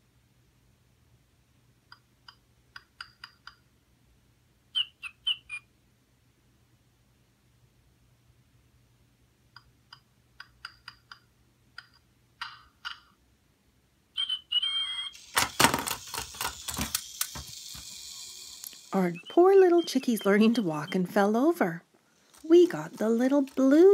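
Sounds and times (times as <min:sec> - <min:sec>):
toy mechanism clicking and clattering: 0:14.8 - 0:19.7, 0:22.3 - 0:23.9.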